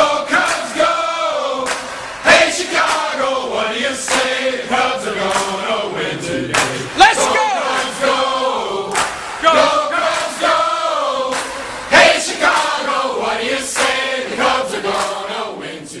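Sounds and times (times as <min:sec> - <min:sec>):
men singing a chanted song: 0:00.0 - 0:16.0
band with steady drum beat: 0:06.5 - 0:08.1, 0:08.9 - 0:10.5.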